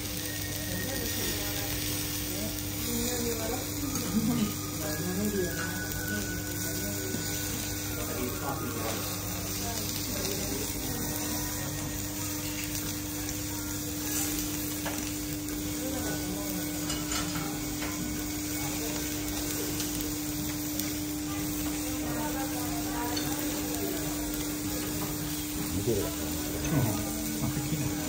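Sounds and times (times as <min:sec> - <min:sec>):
food sizzling on a griddle: 0:00.0 - 0:28.0.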